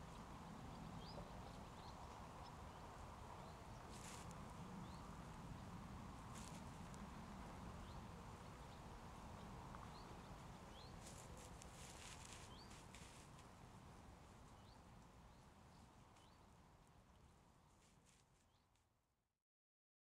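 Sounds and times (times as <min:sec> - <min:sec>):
badger snuffling in leaf litter: 0:03.9 - 0:04.3, 0:06.3 - 0:06.8, 0:11.0 - 0:13.4.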